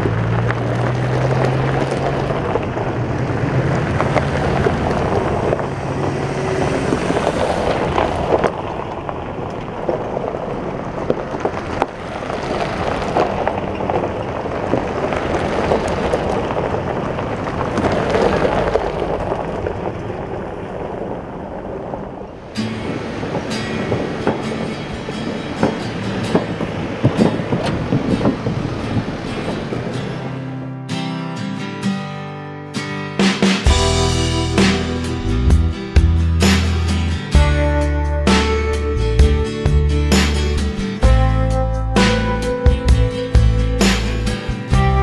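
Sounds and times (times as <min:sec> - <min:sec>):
tyres crunching on gravel: 0:00.0 - 0:30.5
engine hum: 0:00.0 - 0:31.9, 0:32.7 - 0:45.0
wind: 0:00.0 - 0:45.0.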